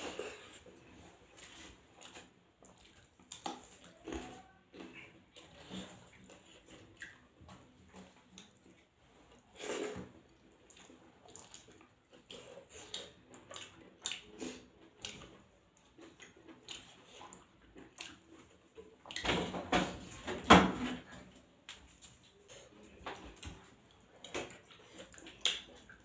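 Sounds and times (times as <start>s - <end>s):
hand mixing rice squelches: 0.0s - 19.2s
chewing and mouth smacks: 0.0s - 19.3s, 21.1s - 26.0s.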